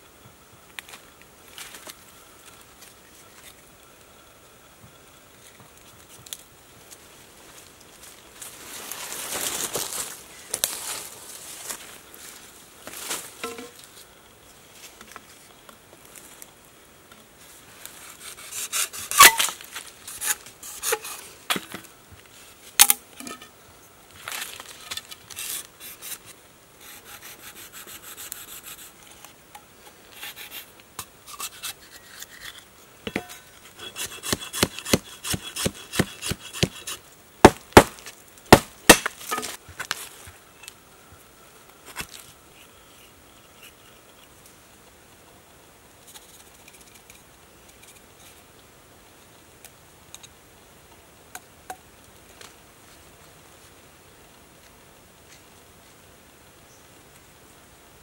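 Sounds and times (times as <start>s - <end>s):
machete chopping bamboo: 18.6s - 19.5s, 22.8s - 23.0s, 33.9s - 39.6s.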